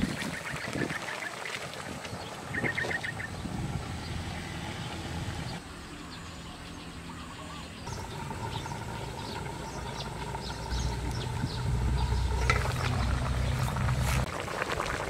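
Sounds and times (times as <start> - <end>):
low rumble: 7.9 - 15.0.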